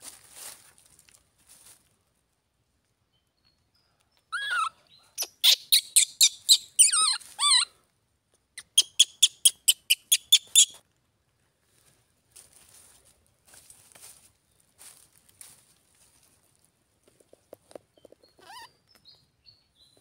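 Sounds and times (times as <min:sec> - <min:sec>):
baby monkey screaming: 0:04.3 - 0:07.7, 0:08.6 - 0:10.8, 0:18.4 - 0:18.7.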